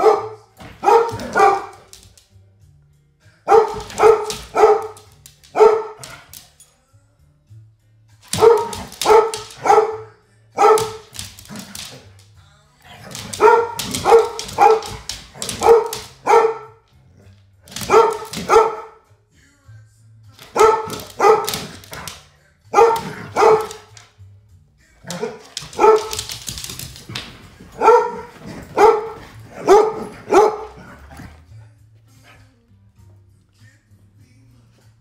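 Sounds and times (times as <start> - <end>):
dog barking: 0.0 - 1.9, 3.4 - 6.4, 8.3 - 11.2, 13.0 - 16.8, 17.7 - 19.0, 20.4 - 24.0, 25.0 - 26.4, 27.7 - 31.0.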